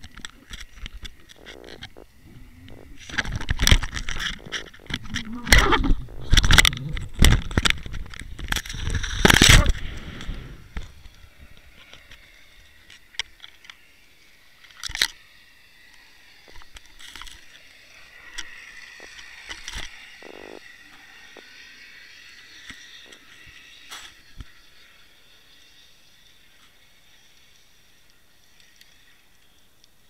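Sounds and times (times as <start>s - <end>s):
faint underwater hiss: 0.0s - 30.0s
sharp underwater clicks and knocks: 2.7s - 11.2s.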